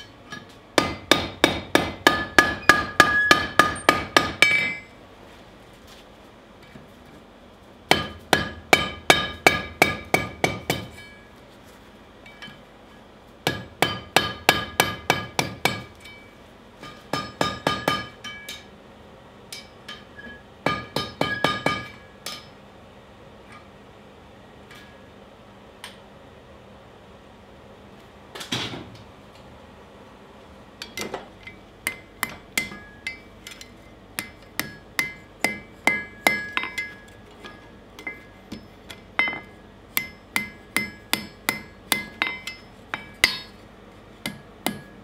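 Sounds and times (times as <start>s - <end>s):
hammer striking hot steel: 0.0s - 4.9s, 7.9s - 11.3s, 13.4s - 18.7s, 19.5s - 22.6s, 30.8s - 43.6s, 44.2s - 45.0s
anvil ringing: 2.1s - 4.9s, 34.2s - 38.3s.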